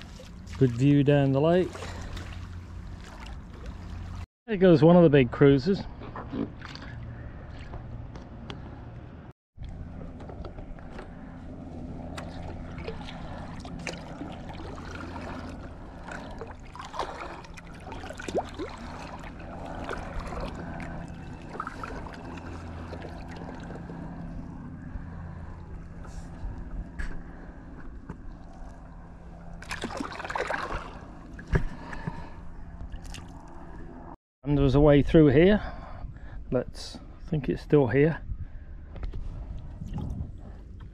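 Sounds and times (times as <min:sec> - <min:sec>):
paddle blades dipping in water: 0:00.0 - 0:00.9, 0:01.6 - 0:04.2, 0:12.1 - 0:24.2, 0:29.6 - 0:32.3
steady low hum: 0:00.0 - 0:40.9.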